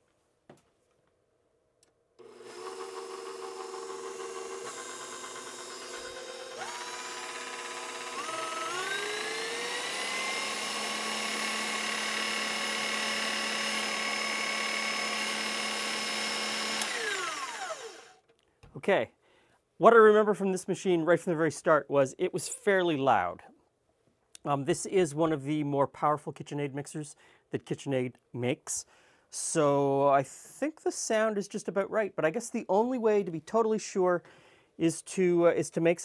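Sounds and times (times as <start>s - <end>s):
stand mixer motor whining: 2.2s - 18.2s.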